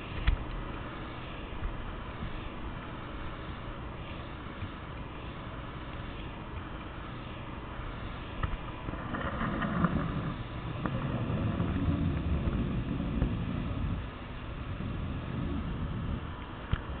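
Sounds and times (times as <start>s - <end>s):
low rumble: 8.6s - 17.0s.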